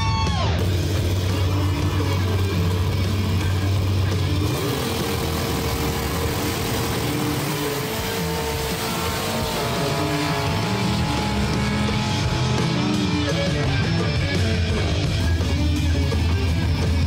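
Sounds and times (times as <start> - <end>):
racing vehicle engines running: 0.2 - 17.0.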